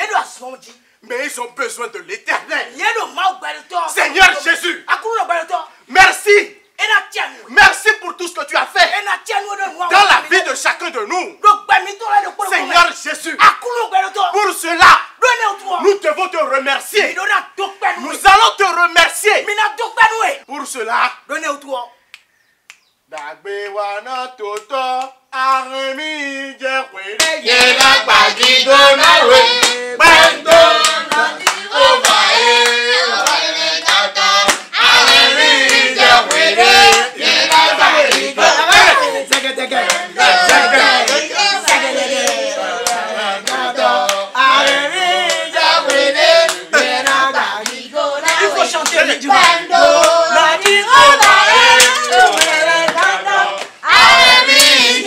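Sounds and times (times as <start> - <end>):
group singing: 23.2 - 55.0
rhythmic hand clapping: 27.2 - 55.0.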